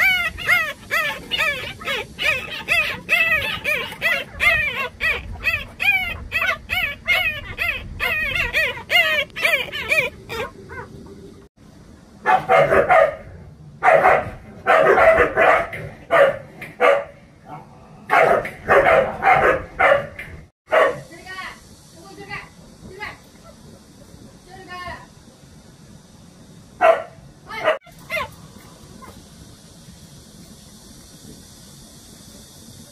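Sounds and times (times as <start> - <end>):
puppy crying: 0.0 - 10.9, 27.8 - 28.4.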